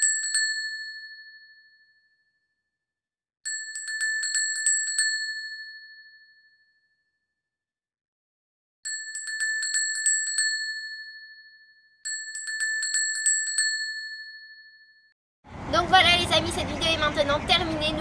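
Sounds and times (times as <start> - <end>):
handbell ringing: 0.0 - 2.1, 3.5 - 6.8, 8.9 - 15.1.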